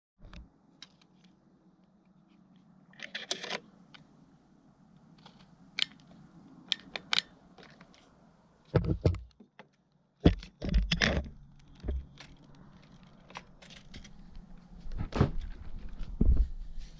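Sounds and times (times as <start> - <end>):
thumps and rubbing on plastic: 8.7 - 9.5.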